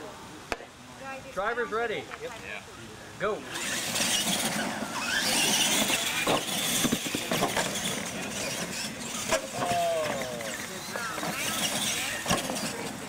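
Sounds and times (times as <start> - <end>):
tyres on dirt: 3.2 - 13.0
electric motors and gears whining: 3.4 - 13.0.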